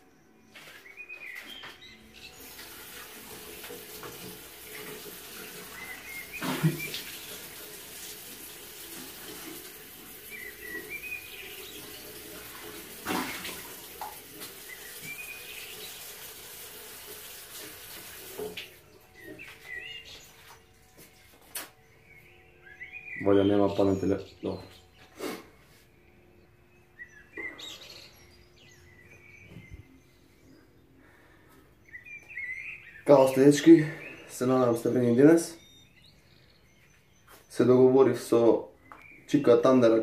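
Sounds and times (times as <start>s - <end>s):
bird chirping: 0.0s - 2.5s, 10.3s - 12.2s, 18.9s - 40.0s
sink tap running: 2.3s - 20.6s
water splashing on face: 2.4s - 18.8s.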